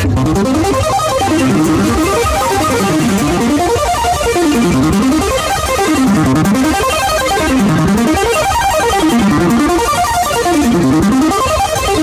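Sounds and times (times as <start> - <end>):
loud music through speakers: 0.0 - 12.0
plucked string runs sweeping in pitch: 0.0 - 12.0
steady bass: 0.0 - 12.0.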